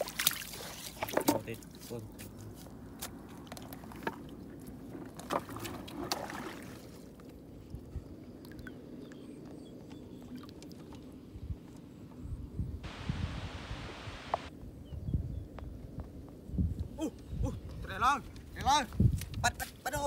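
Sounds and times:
fish splashing in water: 0:00.0 - 0:01.3.

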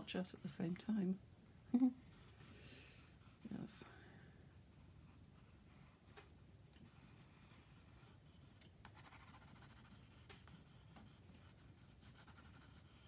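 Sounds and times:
pencil scratching on paper: 0:06.9 - 0:13.0.

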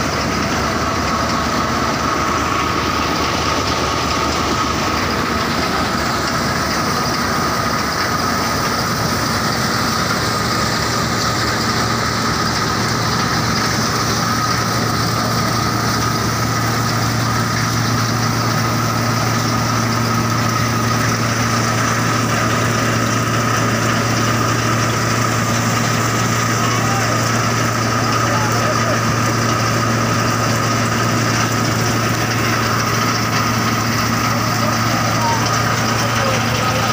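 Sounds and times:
thresher drum high whine: 0:00.0 - 0:36.9
tractor engine drone: 0:00.0 - 0:36.9.

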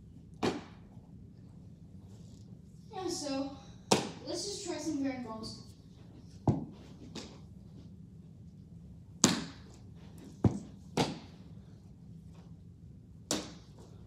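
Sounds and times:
baseball smacking into glove: 0:00.4 - 0:00.8, 0:09.2 - 0:09.7, 0:10.4 - 0:11.4, 0:13.3 - 0:13.8
baseball knocking against wall: 0:06.4 - 0:07.3.

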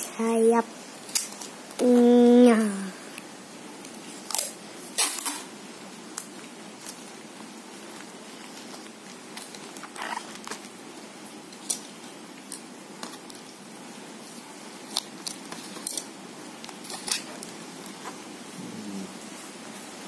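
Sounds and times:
steady background hiss: 0:00.0 - 0:20.0
packing tape crinkling on cardboard: 0:06.1 - 0:10.8, 0:11.4 - 0:18.2.

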